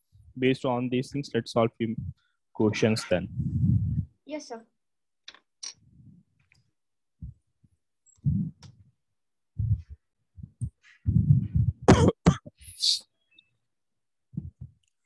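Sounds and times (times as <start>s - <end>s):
person coughing: 11.8s - 12.6s.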